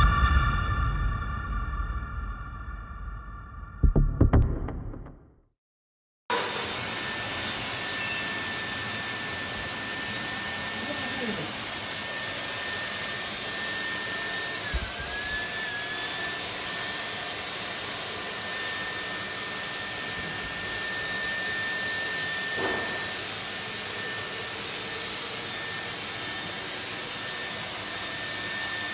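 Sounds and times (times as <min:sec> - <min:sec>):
fogger blower motor whining: 0:06.3 - 0:28.9.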